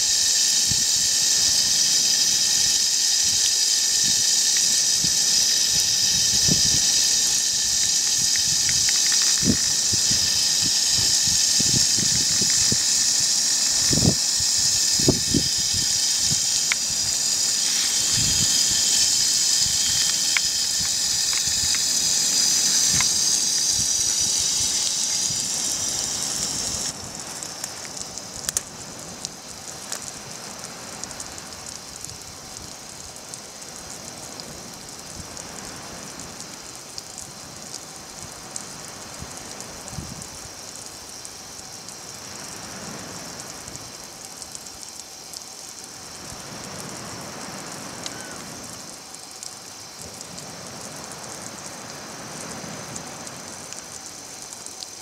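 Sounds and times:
heavy rain hissing: 0:00.0 - 0:55.0
water drips: 0:00.6 - 0:42.6.

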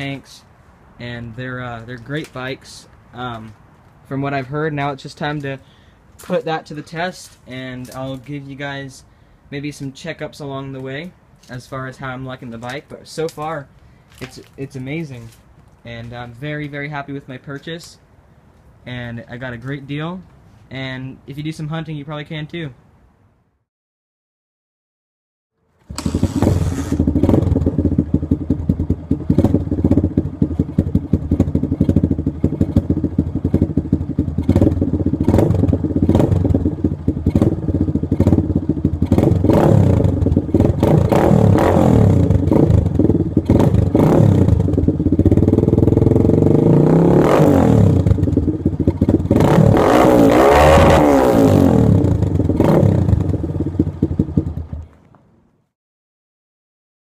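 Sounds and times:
dirt bike engine revving: 0:25.8 - 0:54.7
dirt bike engine idling: 0:25.9 - 0:47.2, 0:47.9 - 0:50.0, 0:51.3 - 0:54.9.

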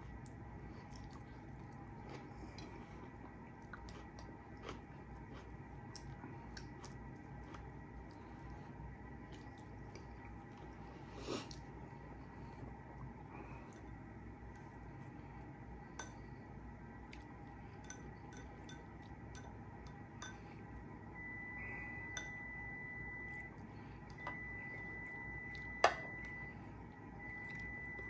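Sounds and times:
faint high steady tone: 0:17.7 - 0:28.0.

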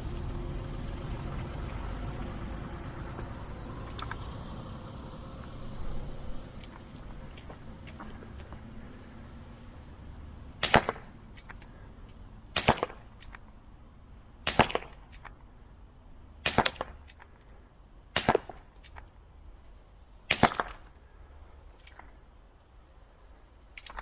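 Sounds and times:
air gun shots: 0:10.6 - 0:11.6, 0:12.5 - 0:13.4, 0:14.4 - 0:15.3, 0:16.4 - 0:17.3, 0:18.1 - 0:19.0, 0:20.3 - 0:20.9.

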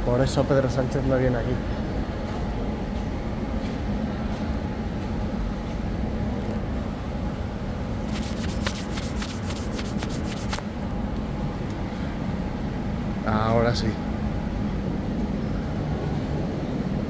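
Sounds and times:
low station rumble: 0:00.0 - 0:08.4, 0:10.6 - 0:17.0
sharp clicks and rubbing: 0:08.1 - 0:10.6.

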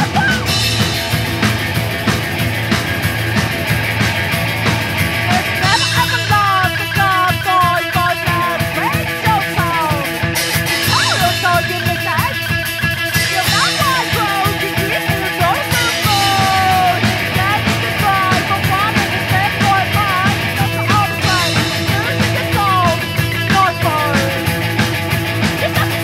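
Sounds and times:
drum kit: 0:00.0 - 0:26.0
electric guitar: 0:00.0 - 0:26.0
person singing: 0:05.3 - 0:10.1, 0:13.2 - 0:24.6.

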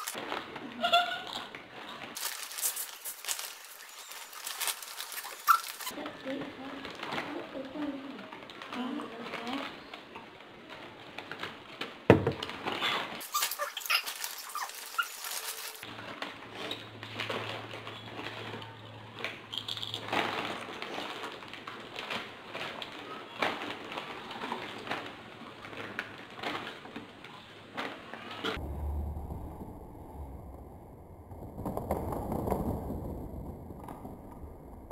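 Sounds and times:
chips being crunched and chewed: 0:00.0 - 0:00.2, 0:02.2 - 0:05.9, 0:13.2 - 0:15.9, 0:19.2 - 0:22.2
foil bags crinkling: 0:00.0 - 0:28.3.

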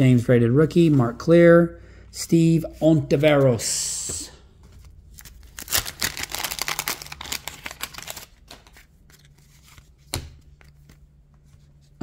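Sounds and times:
handling of cards: 0:04.6 - 0:12.0
wax paper wrapper tearing: 0:05.2 - 0:08.4.

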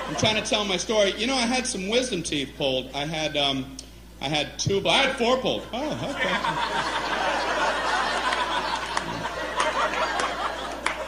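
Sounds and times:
large audience laughing: 0:00.0 - 0:00.7, 0:05.7 - 0:11.0.

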